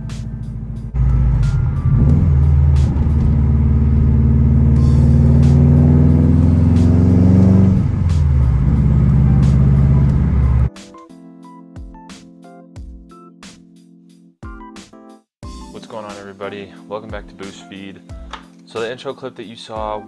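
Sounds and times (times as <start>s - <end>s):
car engine accelerating: 0.0s - 10.7s.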